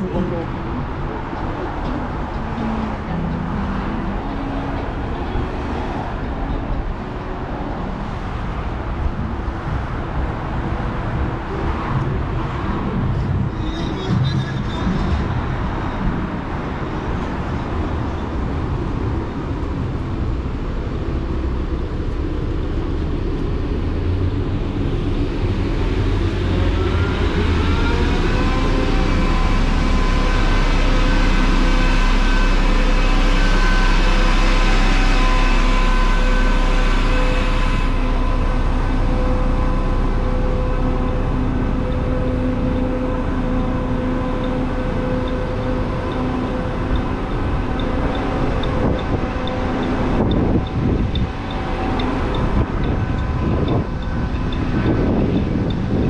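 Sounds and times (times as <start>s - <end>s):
multi-pitch whine: 0.0s - 56.0s
street traffic: 0.0s - 56.0s
truck engine rumbling: 0.0s - 56.0s.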